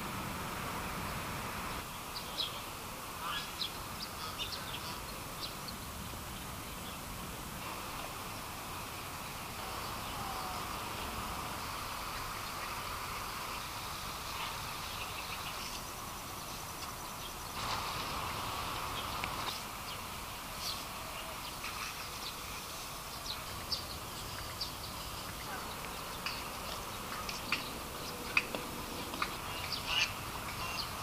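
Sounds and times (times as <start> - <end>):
steady background hum: 0.0 - 31.0.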